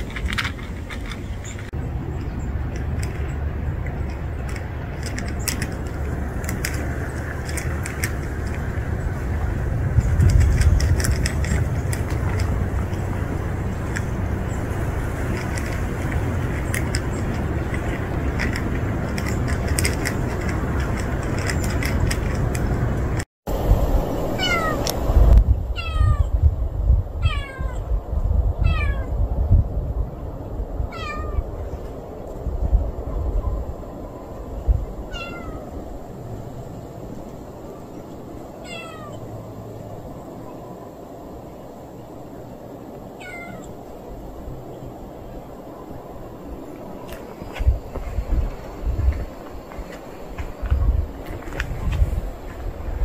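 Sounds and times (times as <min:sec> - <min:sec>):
cats crunching dry kibble: 0:00.0 - 0:01.4, 0:02.6 - 0:23.0
steady low rumble: 0:00.0 - 0:53.0
cat meowing: 0:24.4 - 0:24.8, 0:25.8 - 0:26.3, 0:27.2 - 0:27.8, 0:28.6 - 0:29.1, 0:30.9 - 0:31.4, 0:35.1 - 0:35.7, 0:38.6 - 0:39.2, 0:43.2 - 0:43.7.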